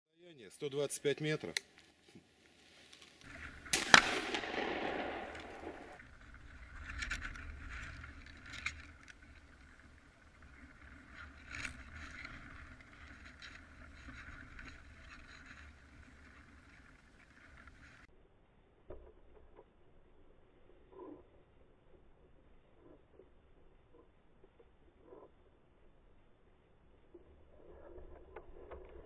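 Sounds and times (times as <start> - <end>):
shotgun shot echoing: 3.7 - 6.0.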